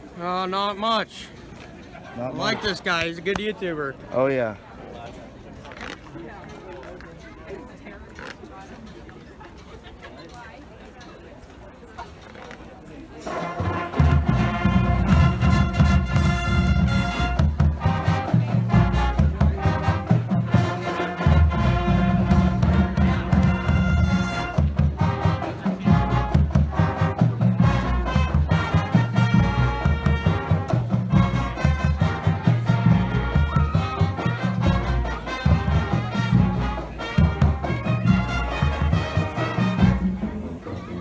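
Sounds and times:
marching band playing: 0:13.2 - 0:40.6.

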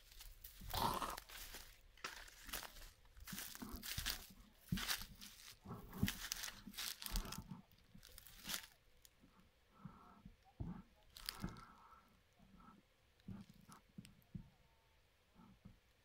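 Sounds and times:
footsteps crunching through dry leaves: 0:00.0 - 0:07.4, 0:08.0 - 0:08.8.

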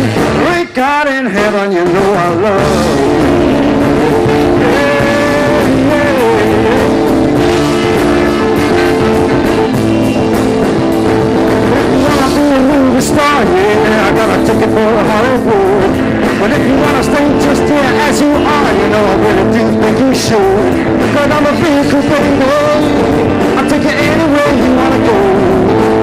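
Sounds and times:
electric guitar: 0:00.0 - 0:26.0
rock band playing: 0:00.0 - 0:26.0.

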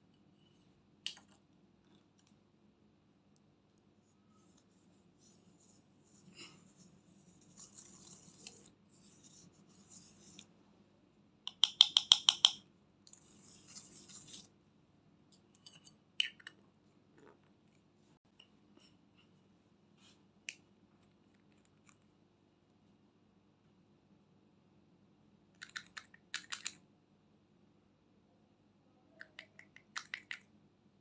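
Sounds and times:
brush scraping eyeshadow: 0:04.0 - 0:10.5, 0:13.1 - 0:14.6.

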